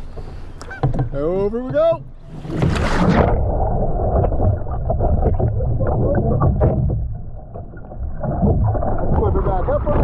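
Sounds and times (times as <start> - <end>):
water sloshing and splashing: 0.0 - 10.0
knocks on boat: 6.4 - 7.1.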